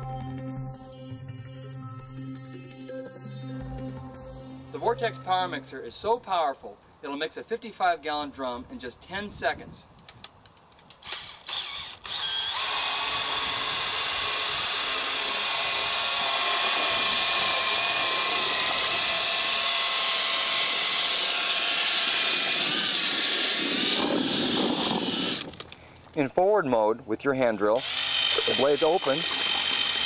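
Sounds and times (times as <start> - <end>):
cordless drill whining: 10.9 - 25.8, 27.5 - 30.0.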